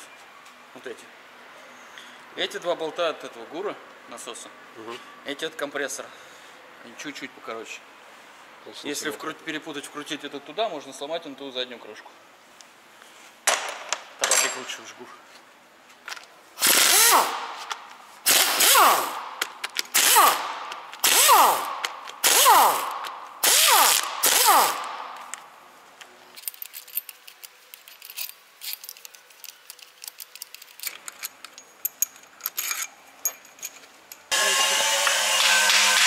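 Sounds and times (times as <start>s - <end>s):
metal parts clicking and tapping: 13.5s - 14.8s, 26.0s - 34.3s
pneumatic impact wrench: 16.6s - 25.3s, 34.3s - 36.0s.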